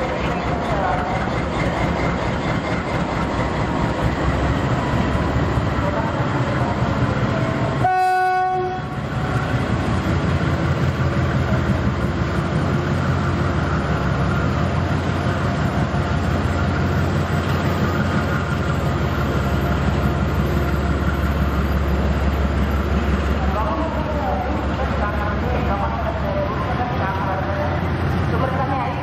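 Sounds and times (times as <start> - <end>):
diesel engines rumbling: 0.0 - 29.0
train horn blast: 7.8 - 9.0.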